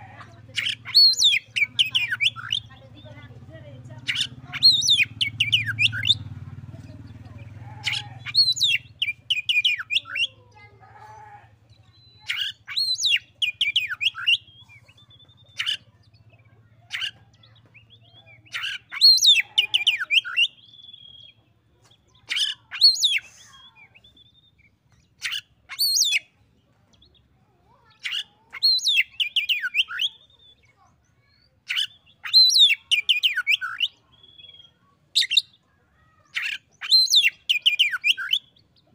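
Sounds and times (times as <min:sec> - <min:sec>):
bird singing whistles and chirps: 0:08.3 - 0:10.3, 0:12.0 - 0:15.8, 0:17.8 - 0:21.4, 0:22.4 - 0:26.3, 0:28.6 - 0:30.7, 0:31.7 - 0:35.6, 0:36.4 - 0:38.6.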